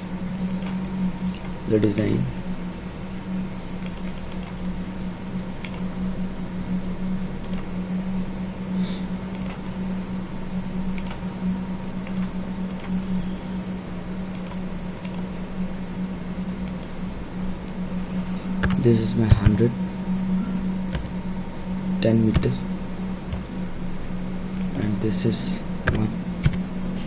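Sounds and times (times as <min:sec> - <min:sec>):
low hum: 0:00.0 - 0:27.0
computer mouse clicks: 0:00.5 - 0:02.1, 0:03.8 - 0:04.6, 0:05.6 - 0:05.8, 0:07.4 - 0:07.7, 0:09.3 - 0:09.6, 0:11.0 - 0:11.2, 0:12.0 - 0:12.9, 0:14.3 - 0:15.3, 0:16.6 - 0:16.9.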